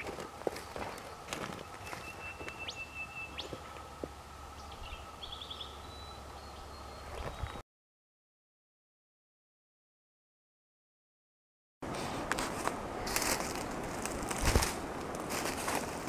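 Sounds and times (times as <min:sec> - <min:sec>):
footsteps crunching on dry leaves: 0:00.0 - 0:02.8, 0:11.9 - 0:16.0
small birds calling: 0:00.0 - 0:07.6.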